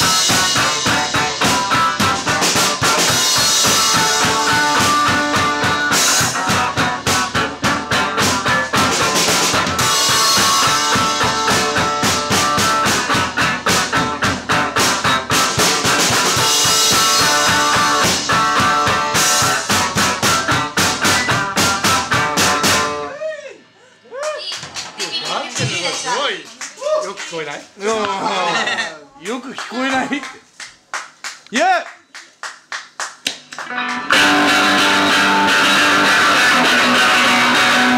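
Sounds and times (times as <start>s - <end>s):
distorted electric guitar: 0.0s - 23.1s, 33.7s - 37.9s
drum kit beat: 0.0s - 23.1s, 32.3s - 37.9s.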